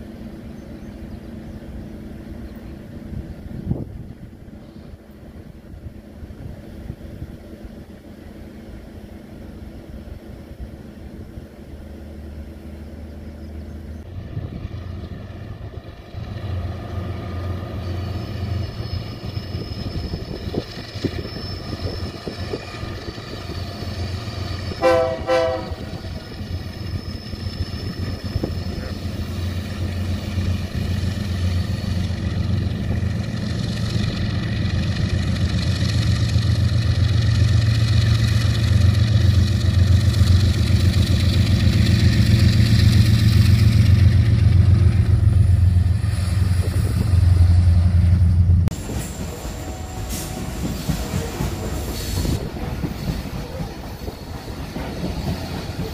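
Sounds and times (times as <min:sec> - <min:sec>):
diesel locomotive engines rumbling: 0:00.0 - 0:55.9
short train horn toot: 0:24.7 - 0:26.1, 0:49.3 - 0:52.3.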